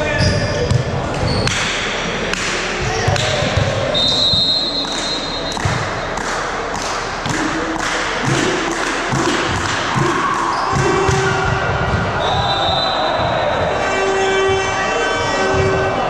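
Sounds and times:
players' voices echoing: 0.0 - 16.0
ball bouncing on wooden floor: 2.9 - 3.9, 9.1 - 12.1.

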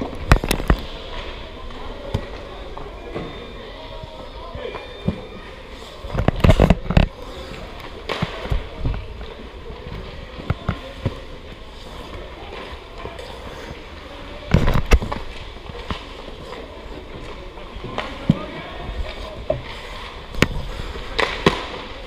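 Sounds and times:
rink background noise: 0.0 - 22.0
hockey pucks and sticks clattering: 4.7 - 22.0.

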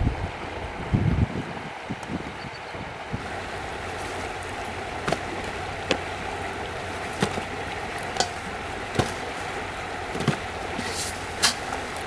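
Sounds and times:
river water flowing over rocks: 2.8 - 12.0.

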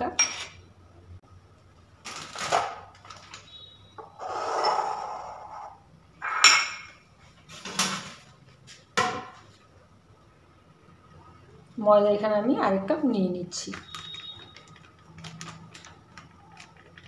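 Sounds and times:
bowl scraping slide: 4.0 - 6.4.

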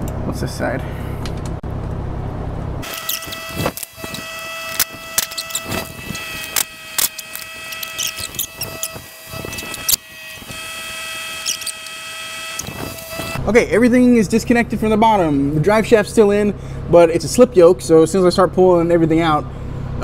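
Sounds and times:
steady high whine: 0.0 - 17.2
wrench clicking on bolts: 2.8 - 10.0, 11.4 - 13.1
short squeaks: 2.8 - 13.4.

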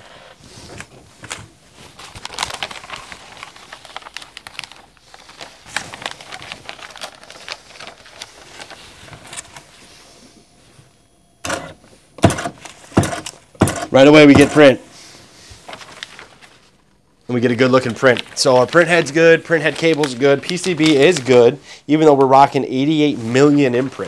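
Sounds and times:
paper rustling: 0.4 - 10.8, 11.8 - 16.8, 17.4 - 21.6, 22.7 - 24.0
printer clicks and taps: 11.4 - 14.6
sharp knock: 11.4 - 14.6.

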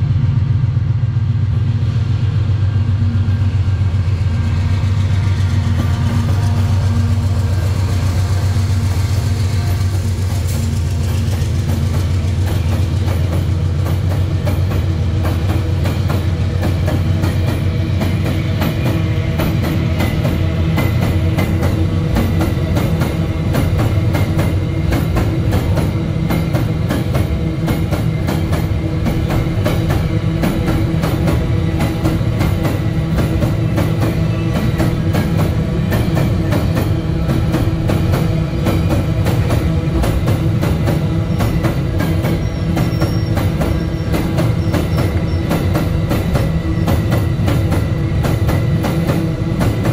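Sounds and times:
locomotive engine drone: 0.0 - 49.9
train wheels clicking over rail joints: 1.1 - 49.9.

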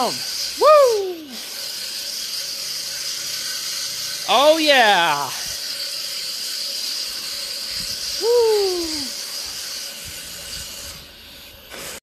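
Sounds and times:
pressure washer foam spraying: 0.0 - 12.0
vocal exclamation: 0.6 - 1.4, 8.2 - 9.1.

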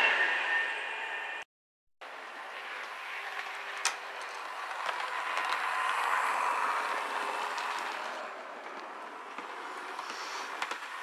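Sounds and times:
wheels rolling on rails: 2.0 - 11.0
model train motor whirring: 2.3 - 8.4.

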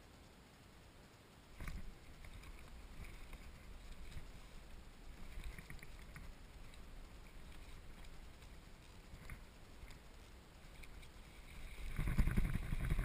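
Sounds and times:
faint clicks: 0.0 - 13.0
low uneven rumble: 0.0 - 13.0.

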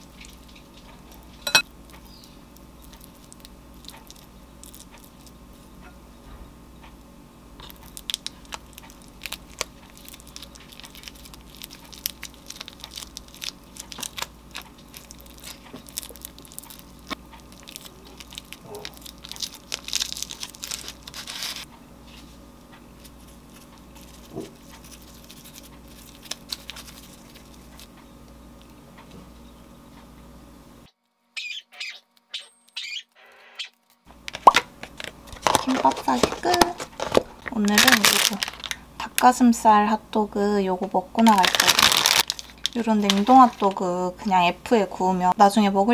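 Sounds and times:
steady low hum: 0.0 - 31.4, 32.0 - 45.9
seaweed sheets crackling: 7.6 - 21.7, 22.9 - 27.9, 33.8 - 39.4, 41.2 - 44.2.

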